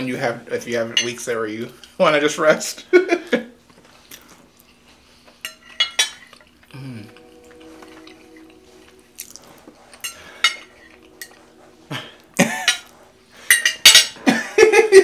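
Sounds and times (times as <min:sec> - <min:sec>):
cutlery scraping on ceramic plate: 0:05.4 - 0:06.6, 0:07.4 - 0:14.3.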